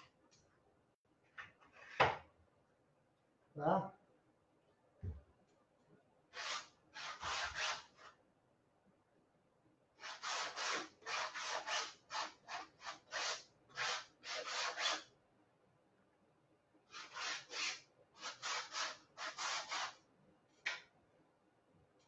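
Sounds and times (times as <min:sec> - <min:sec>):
palette knife scraping canvas: 0:06.3 - 0:08.2, 0:10.0 - 0:15.1, 0:16.9 - 0:20.0.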